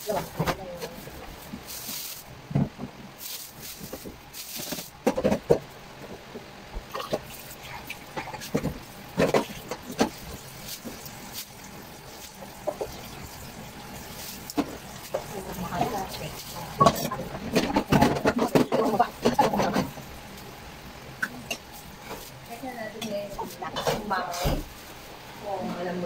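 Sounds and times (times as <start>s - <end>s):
plastic bag rustling: 0.0s - 2.6s, 3.2s - 5.5s.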